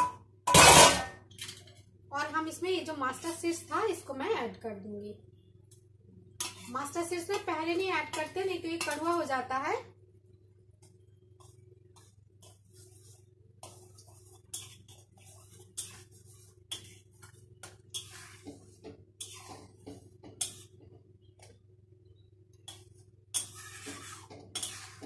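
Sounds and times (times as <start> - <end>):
metal spatula scraping pan: 0.5 - 1.1, 6.4 - 9.3, 12.0 - 20.9, 22.7 - 25.0.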